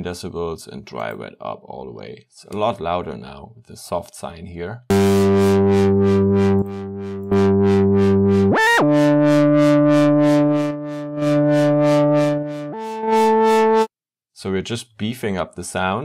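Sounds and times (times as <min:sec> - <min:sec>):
distorted synth lead notes: 0:04.9 - 0:13.9.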